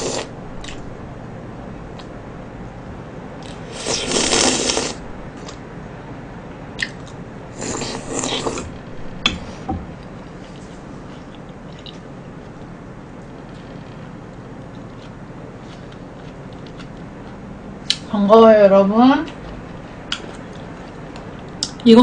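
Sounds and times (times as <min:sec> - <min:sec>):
shaved ice being eaten: 0:00.0 - 0:00.3, 0:03.4 - 0:05.6.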